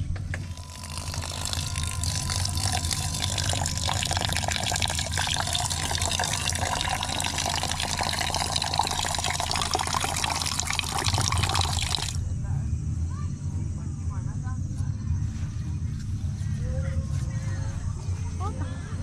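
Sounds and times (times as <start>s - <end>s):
water pouring into metal pot: 0.4s - 12.2s.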